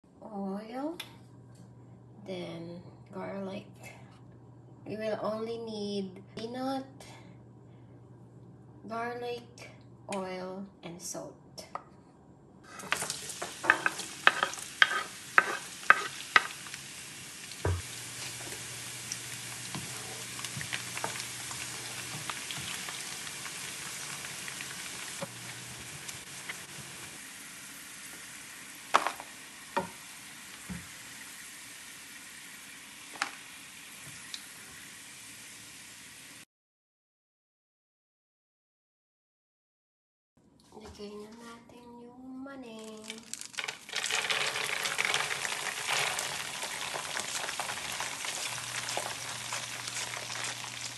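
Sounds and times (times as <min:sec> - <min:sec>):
garlic sizzling in oil: 0:12.7 - 0:36.4, 0:43.0 - 0:50.9.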